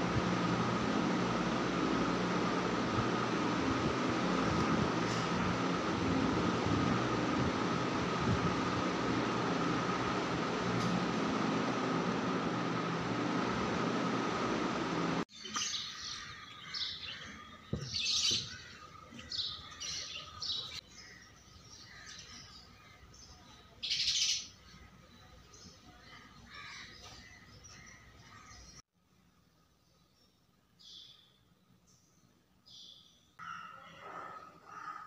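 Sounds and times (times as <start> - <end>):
small birds chirping: 15.3 - 28.8.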